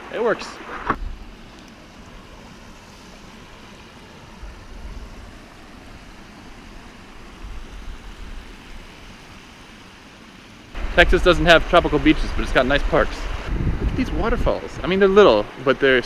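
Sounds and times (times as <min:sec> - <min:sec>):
wind rushing over microphone: 0:10.8 - 0:15.3.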